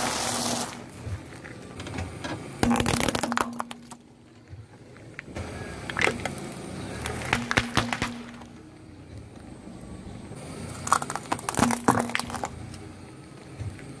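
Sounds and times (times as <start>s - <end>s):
tyre crushing metal cup: 2.6s - 4.0s, 10.9s - 12.6s
tyre crushing plastic cups: 2.6s - 4.1s, 5.8s - 8.6s, 10.8s - 12.6s.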